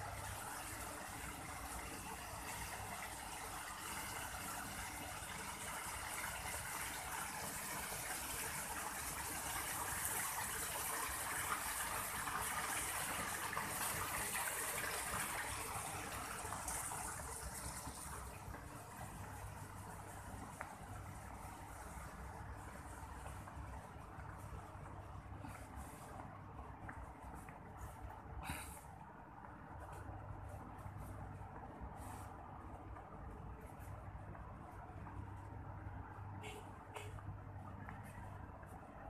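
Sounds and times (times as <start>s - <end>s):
water splashing into a pond: 0.1s - 23.2s.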